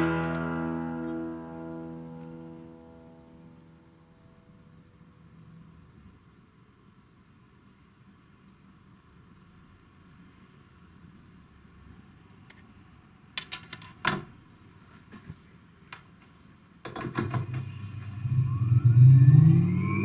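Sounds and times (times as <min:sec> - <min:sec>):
steady hum: 0:00.0 - 0:06.8, 0:17.2 - 0:20.0
electric motor whine: 0:17.6 - 0:20.0.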